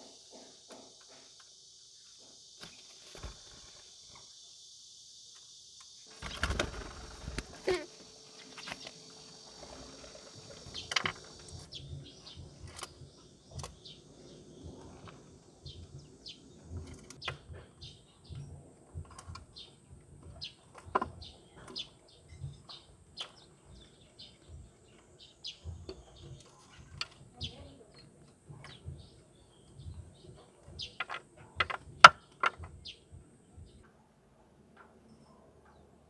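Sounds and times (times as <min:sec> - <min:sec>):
light hiss: 0:00.0 - 0:18.2
small birds chirping: 0:05.8 - 0:34.1.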